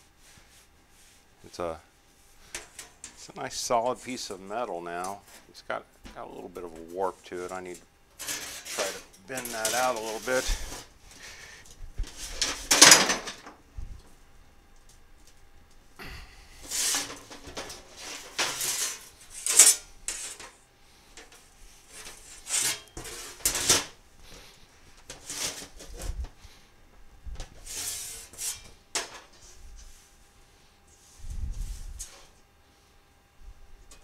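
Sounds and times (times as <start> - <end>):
steel panel scraping and clattering: 6.7 - 10.9, 12.0 - 13.5, 16.6 - 20.6, 21.2 - 23.9, 25.1 - 26.2, 27.4 - 29.4.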